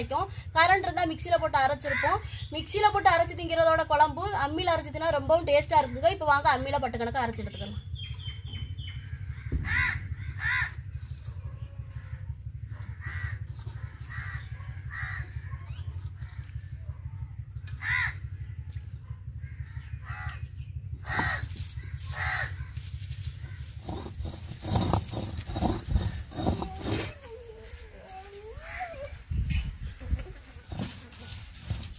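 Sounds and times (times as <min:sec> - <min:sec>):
steady low rumble: 0:00.1 - 0:31.9
crows cawing: 0:09.4 - 0:10.9, 0:12.9 - 0:15.4, 0:17.8 - 0:18.2, 0:19.4 - 0:20.4, 0:21.0 - 0:22.9.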